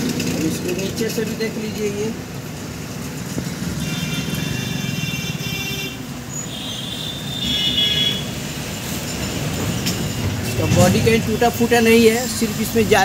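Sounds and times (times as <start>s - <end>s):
road traffic rumble: 0.0s - 13.0s
vehicle horn: 3.7s - 8.4s.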